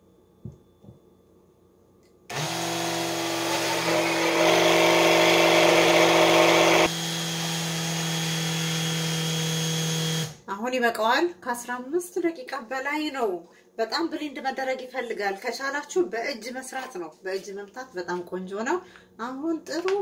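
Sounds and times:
blender churning: 2.3 - 10.4
blender motor running: 2.3 - 10.4.

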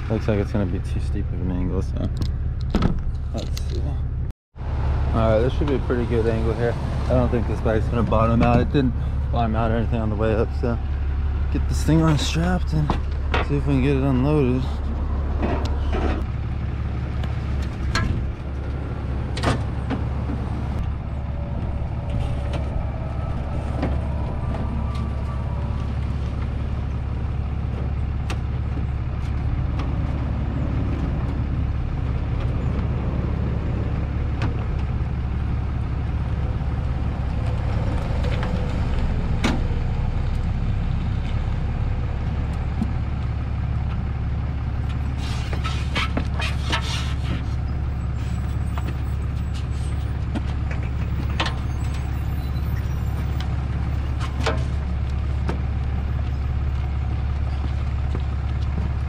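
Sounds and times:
diesel truck engine idling: 3.3 - 59.0.

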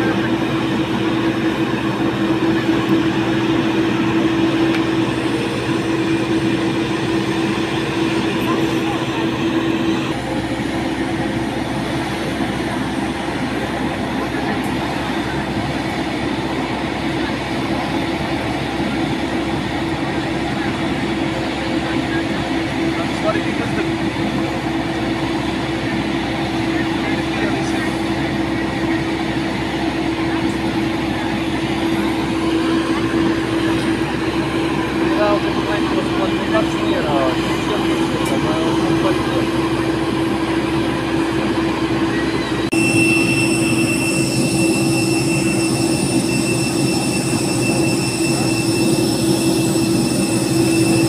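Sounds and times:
airport machinery drone: 0.0 - 51.0
constant humming tone: 0.0 - 51.0.

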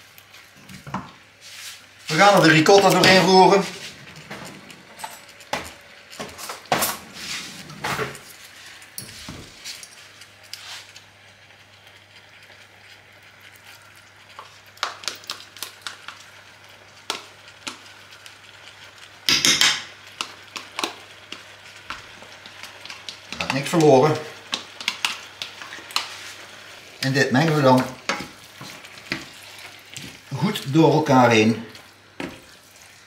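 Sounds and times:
utensil scraping frying pan: 1.4 - 9.8, 19.4 - 33.0.

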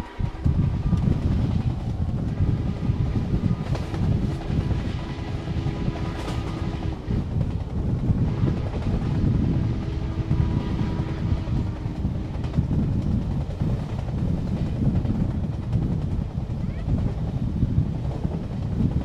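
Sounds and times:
train rumbling at speed: 0.0 - 19.0
wind buffeting microphone: 0.0 - 19.0.

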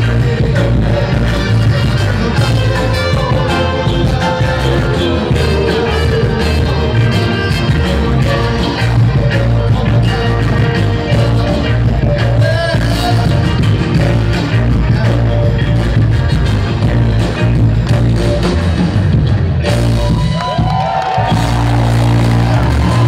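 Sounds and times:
audience shouting: 20.0 - 23.0.

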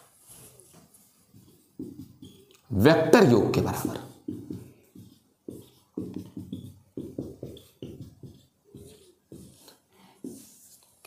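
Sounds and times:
writing taps on board: 1.3 - 2.6, 3.6 - 10.4.

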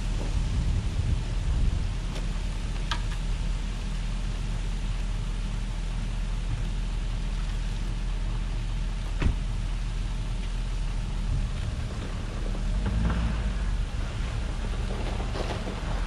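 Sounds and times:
engine idling: 0.0 - 16.0.

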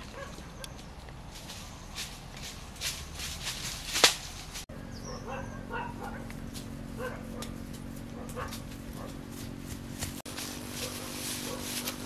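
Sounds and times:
steady low hum: 0.2 - 12.0.

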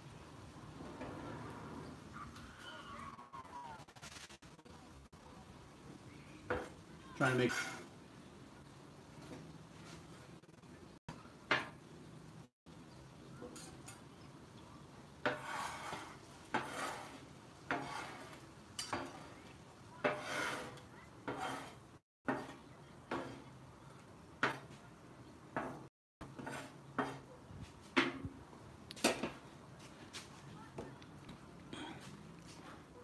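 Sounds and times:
metal spatula scraping griddle: 15.2 - 19.4, 20.0 - 23.5, 26.2 - 27.3.

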